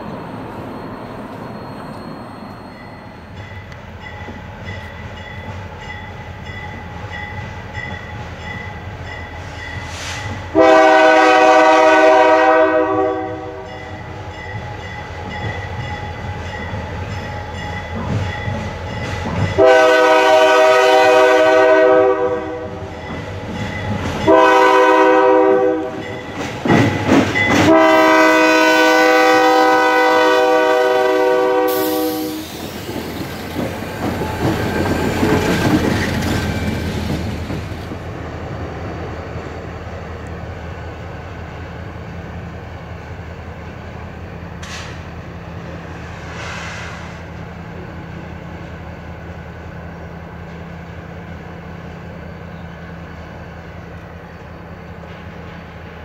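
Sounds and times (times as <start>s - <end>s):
freight train rumbling: 0.0s - 56.0s
train wheels on rails: 0.0s - 56.0s
locomotive air horn blasts: 9.9s - 13.7s, 19.6s - 22.8s, 24.3s - 26.1s, 27.6s - 32.5s.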